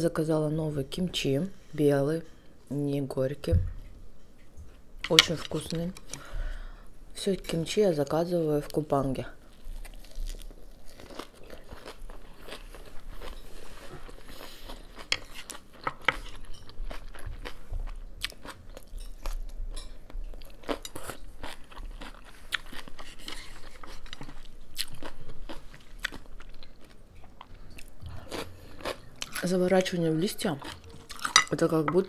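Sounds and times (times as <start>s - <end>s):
person chewing crunchy vegetables: 9.4s - 31.6s.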